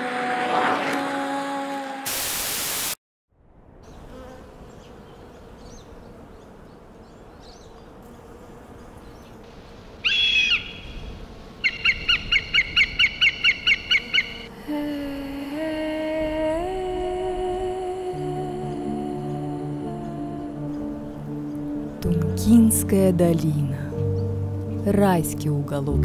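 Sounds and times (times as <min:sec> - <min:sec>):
loud hiss: 0:02.0 - 0:03.0
faint distant bird chirps: 0:03.9 - 0:08.0
loud bird call: 0:10.0 - 0:14.5
fast repeated bird notes: 0:10.1 - 0:14.5
music: 0:15.6 - 0:26.0.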